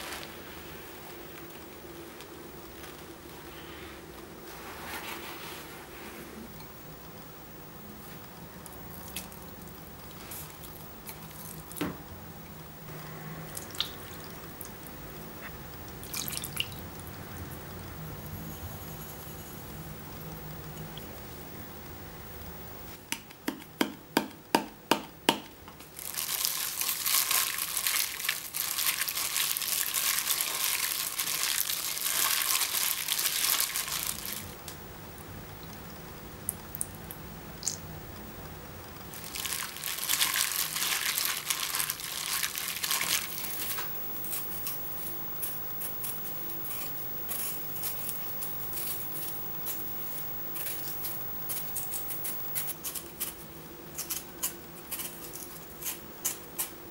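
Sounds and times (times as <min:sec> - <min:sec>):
wet squishing of meat mixing: 0:39.1 - 0:43.7
knife paring fruit ticks: 0:50.5 - 0:56.8.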